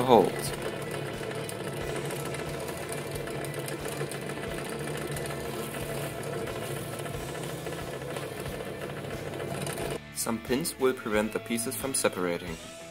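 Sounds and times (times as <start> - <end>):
drill bit boring plywood: 0.0 - 10.0
drill press motor running: 0.0 - 10.0.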